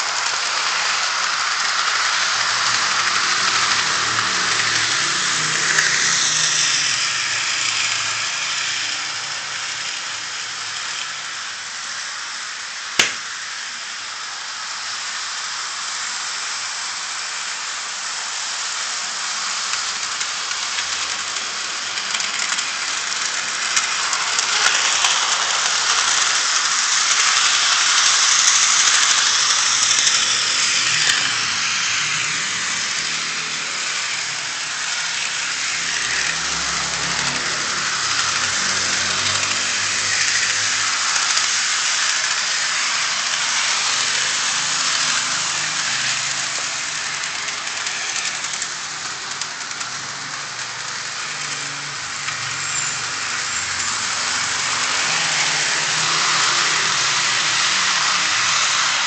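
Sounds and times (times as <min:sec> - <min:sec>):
model train rolling hiss: 0:00.0 - 0:59.0
sharp click: 0:13.0 - 0:13.3.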